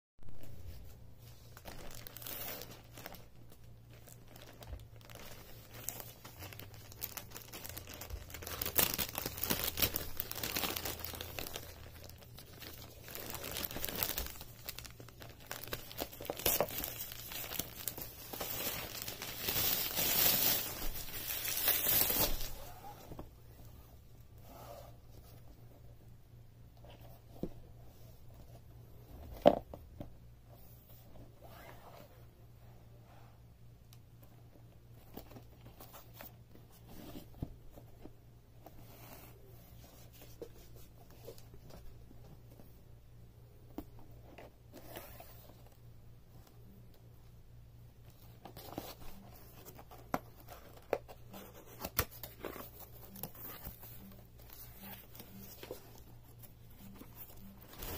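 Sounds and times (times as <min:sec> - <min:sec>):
plastic pouch tearing and crinkling: 0:01.5 - 0:22.6.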